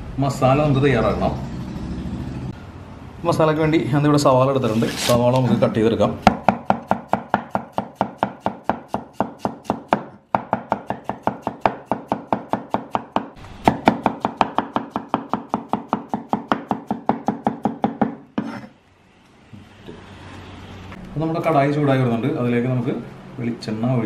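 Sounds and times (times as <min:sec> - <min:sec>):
cleaver chopping on wooden board: 0:06.3 - 0:18.5.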